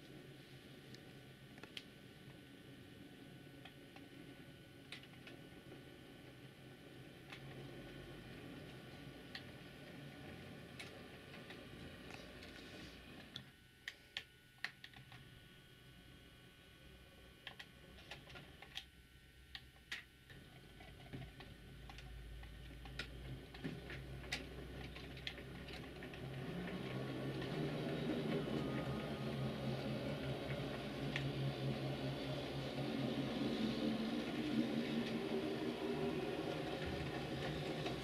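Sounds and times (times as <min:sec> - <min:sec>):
low steady hum: 0:00.0 - 0:38.0
model train wheels clicking: 0:20.7 - 0:38.0.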